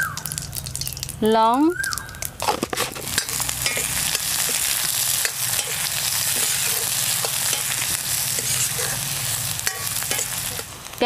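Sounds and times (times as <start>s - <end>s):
onions sizzling in oil: 0.0s - 11.0s
metal ladle scraping pan: 2.4s - 10.7s.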